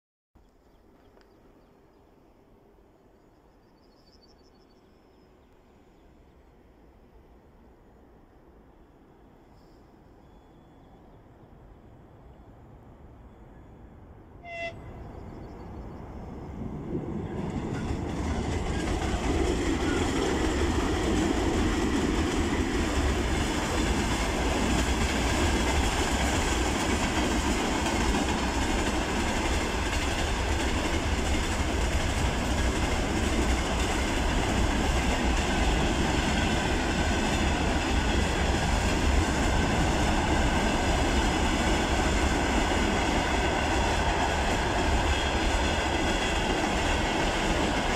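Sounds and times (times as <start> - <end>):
train wheels rumbling on rails: 14.6 - 47.9.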